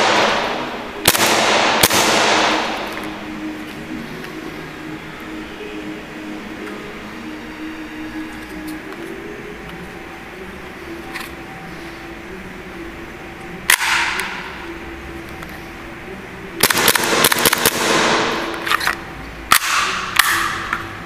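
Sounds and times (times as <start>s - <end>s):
airsoft pistol shots: 0.0s - 3.0s, 13.7s - 14.2s, 16.6s - 18.6s.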